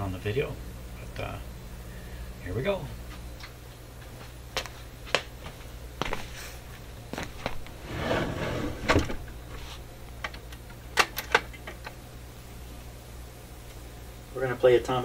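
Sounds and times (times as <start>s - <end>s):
steady low hum: 0.0s - 15.0s
drawer sliding rumble: 7.8s - 9.4s.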